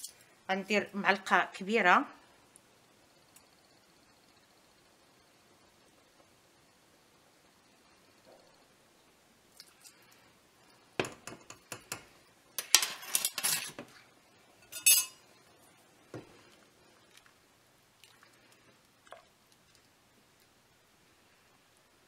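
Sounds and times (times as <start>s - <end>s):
utensils clinking on metal pot: 14.6s - 15.2s.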